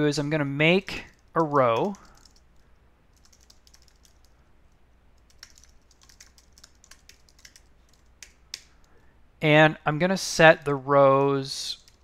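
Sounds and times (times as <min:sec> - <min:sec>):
keyboard typing: 0:01.0 - 0:04.4, 0:05.2 - 0:09.0.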